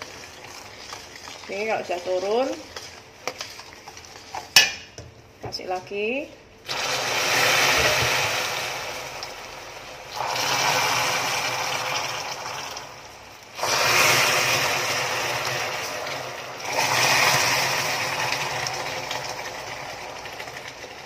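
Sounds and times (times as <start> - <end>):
caramel hissing and sizzling: 0.0 - 4.9.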